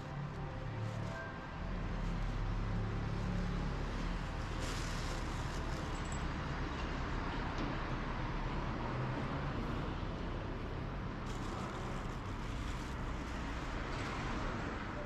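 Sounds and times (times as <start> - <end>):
low rumble of vehicles: 0.0 - 15.0.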